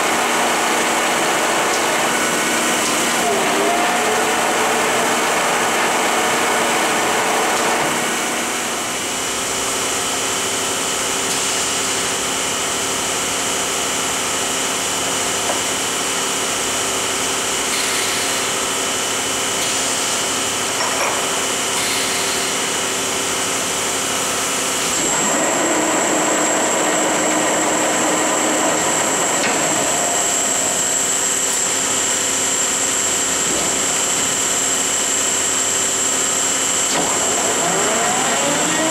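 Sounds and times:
boring mill humming: 0:00.0 - 0:09.3, 0:22.6 - 0:38.9.

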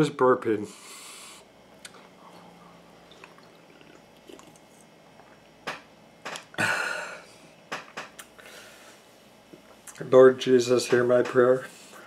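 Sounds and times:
man sipping and swallowing: 0:01.8 - 0:05.6.

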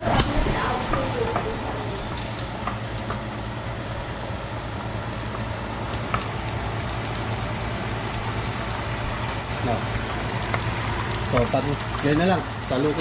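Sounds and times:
garlic sizzling in oil: 0:00.0 - 0:13.0.

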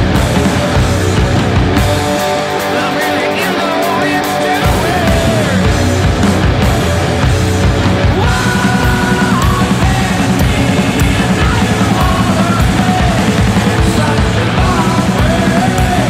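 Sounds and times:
heavy rock music: 0:00.0 - 0:16.0.

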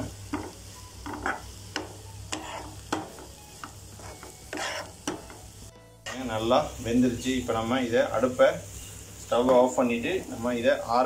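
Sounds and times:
vegetables sizzling: 0:00.0 - 0:11.0
spoon scraping frying pan: 0:00.3 - 0:05.4.

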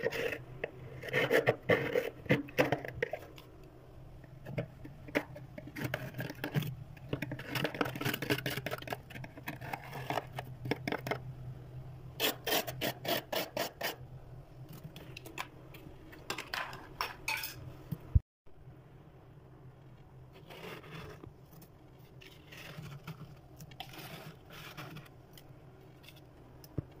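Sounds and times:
frost being scraped: 0:21.9 - 0:25.2.

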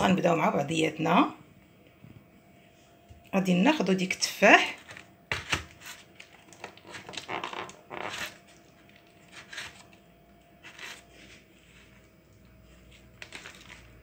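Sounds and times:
apple pieces shifting: 0:12.8 - 0:14.0.

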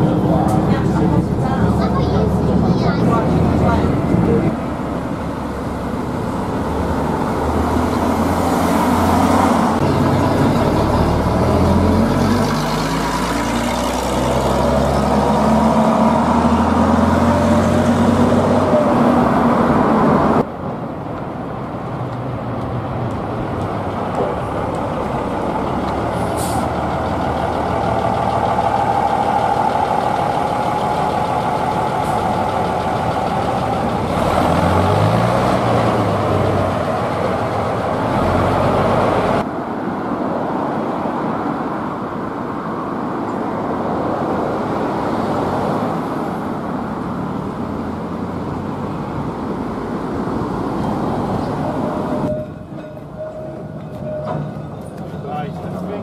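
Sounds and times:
bus diesel engine pulling away: 0:00.0 - 0:20.5, 0:21.9 - 0:39.5, 0:44.2 - 0:56.0
bus diesel engine running: 0:00.0 - 0:39.5
traffic passing: 0:00.0 - 0:56.0.

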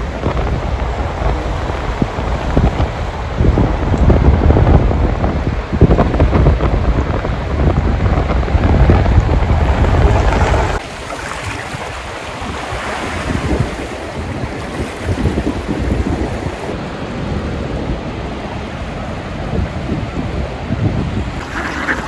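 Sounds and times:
wind buffeting microphone: 0:00.0 - 0:22.0
water rushing: 0:08.3 - 0:17.5, 0:21.2 - 0:22.0.

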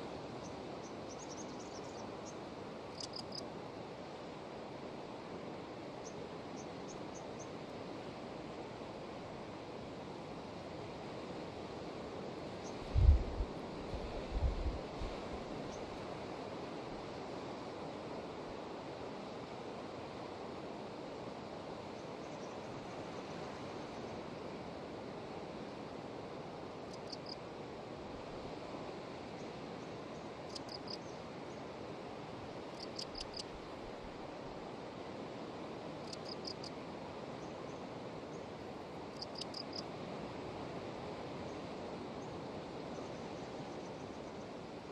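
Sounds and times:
insect chirping: 0:00.4 - 0:03.4, 0:26.9 - 0:27.4, 0:30.1 - 0:31.2, 0:32.7 - 0:33.6, 0:36.0 - 0:36.8, 0:39.1 - 0:39.9.

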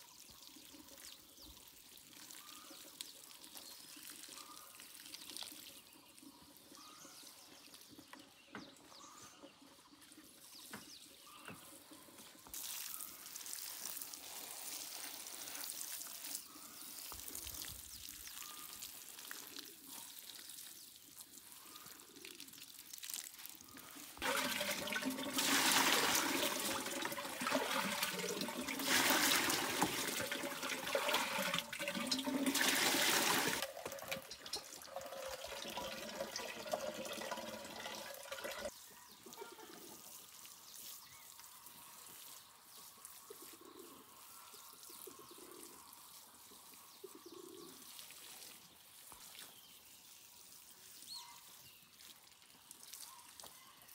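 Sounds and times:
running pouring water: 0:22.3 - 0:38.7.

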